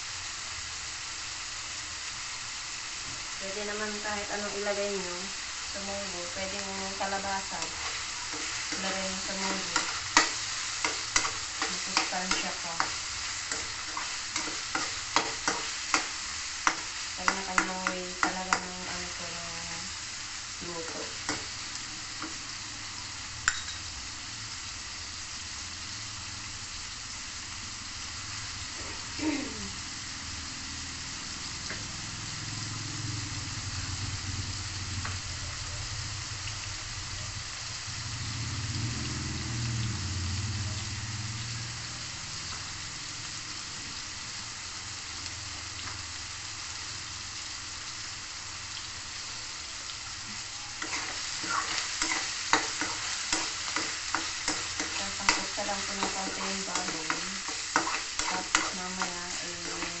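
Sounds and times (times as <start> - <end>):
meat sizzling in a wok: 0.0 - 60.0
utensil scraping metal pan: 50.8 - 60.0.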